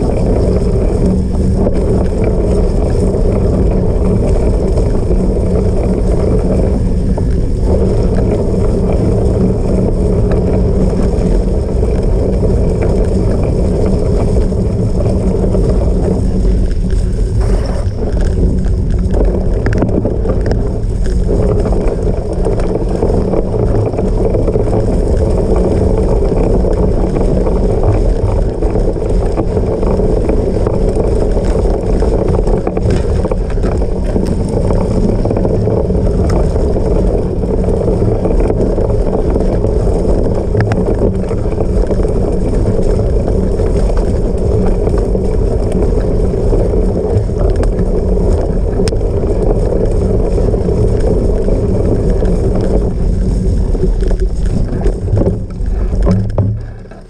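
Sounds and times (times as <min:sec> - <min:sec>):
bike tyres rumbling off-road: 0:00.0 - 0:57.0
wind across microphone: 0:00.0 - 0:57.0.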